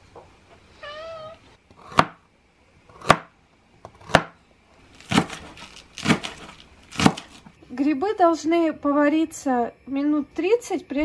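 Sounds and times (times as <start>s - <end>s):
cat meowing: 0.8s - 1.5s
knife chopping on plastic board: 1.9s - 2.2s, 2.9s - 3.3s, 3.9s - 4.4s, 5.0s - 7.4s.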